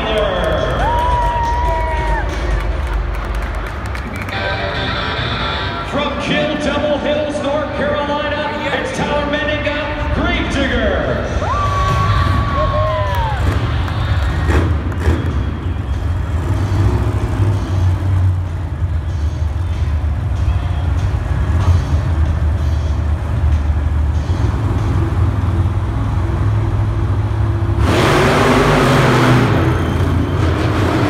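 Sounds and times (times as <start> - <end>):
monster truck engines idling: 0.0 - 31.0
engine revving: 13.2 - 19.9, 21.3 - 31.0.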